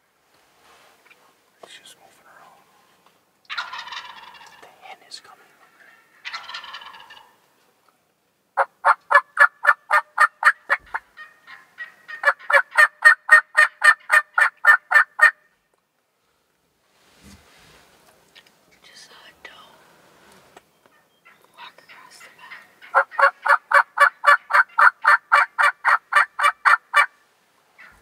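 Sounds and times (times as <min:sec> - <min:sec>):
sharp turkey calls: 0:03.5 - 0:04.6, 0:05.6 - 0:07.4, 0:08.6 - 0:15.5, 0:20.9 - 0:28.0
turkey gobbling: 0:03.5 - 0:04.6, 0:05.9 - 0:07.4, 0:08.6 - 0:15.4, 0:21.2 - 0:27.2, 0:27.8 - 0:28.0.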